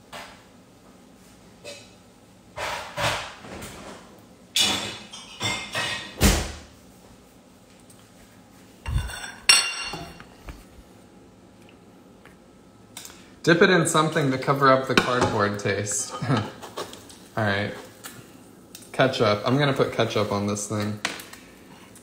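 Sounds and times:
crockery knocking and clinking: 0:08.9 - 0:10.2.

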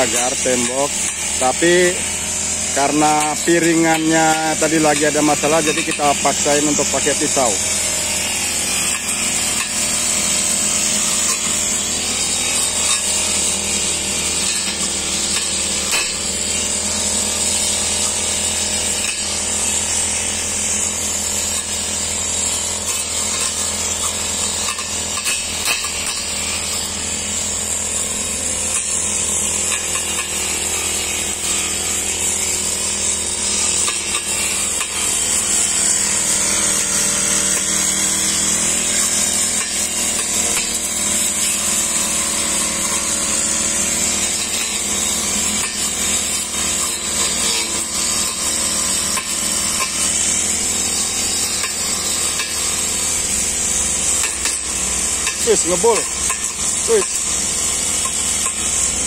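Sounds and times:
blade cutting grass: 0:00.0 - 0:59.0
brush cutter engine running: 0:00.0 - 0:59.0
blade hitting concrete curb: 0:08.3 - 0:13.1, 0:14.4 - 0:16.2, 0:22.8 - 0:27.0, 0:33.4 - 0:40.8, 0:44.3 - 0:52.8.

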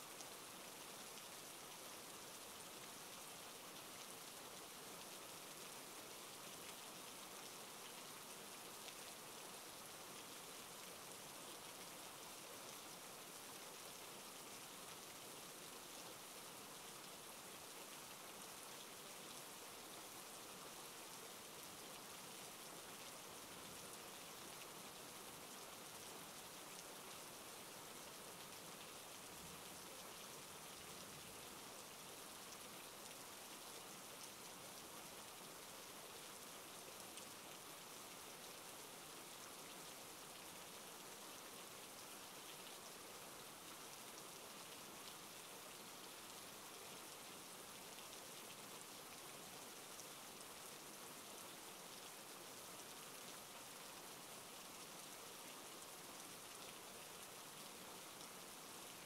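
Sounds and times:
steady rain: 0:00.0 - 0:59.0.

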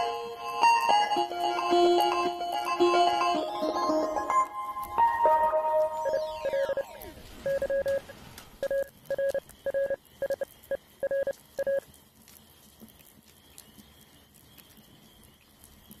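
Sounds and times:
electronic beeps: 0:02.8 - 0:11.8.

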